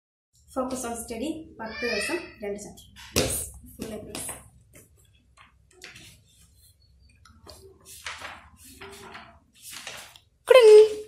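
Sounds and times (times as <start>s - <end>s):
book pages rustling: 4.7s - 11.0s.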